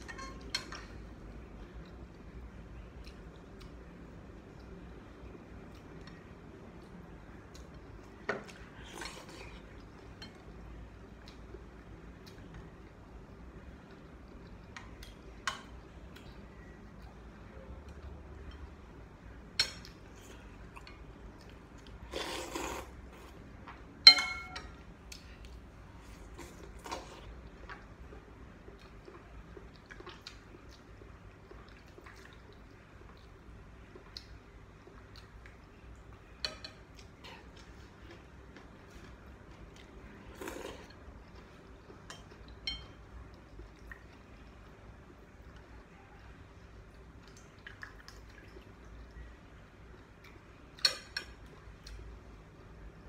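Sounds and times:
noodles being slurped: 22.0 - 23.1
utensils clinking on ceramic bowl: 24.0 - 24.8.

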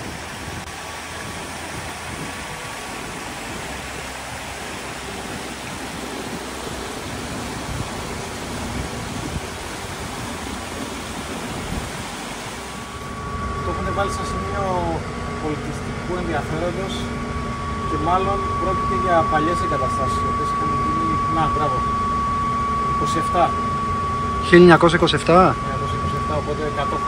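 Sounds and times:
waterfall and stream rushing: 0.0 - 13.2.

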